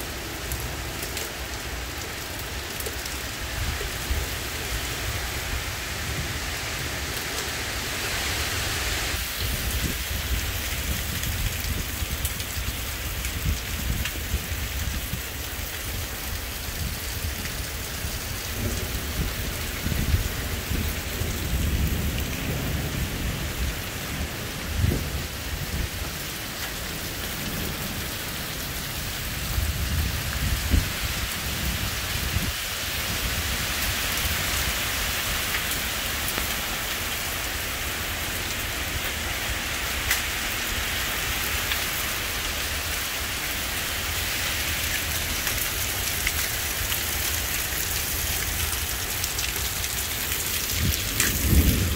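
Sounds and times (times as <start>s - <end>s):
heavy rain downpour: 0.0s - 51.9s
thunder rumbling: 50.6s - 51.9s.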